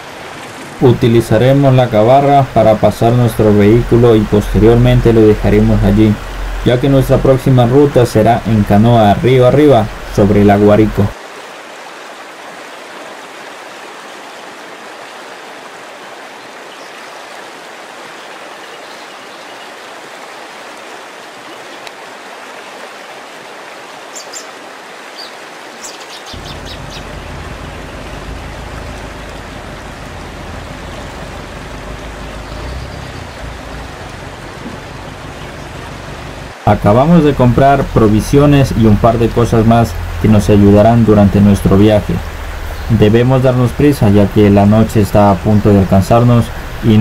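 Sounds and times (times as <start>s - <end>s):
deep low rumble: 26.4s - 36.5s
hiss of water: 45.3s - 47.0s.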